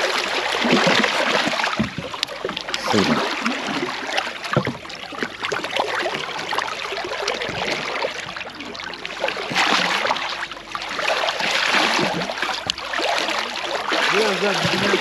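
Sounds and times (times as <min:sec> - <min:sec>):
water sloshing against hull: 0:00.0 - 0:15.0
loud splash: 0:02.8 - 0:04.6, 0:11.0 - 0:15.0.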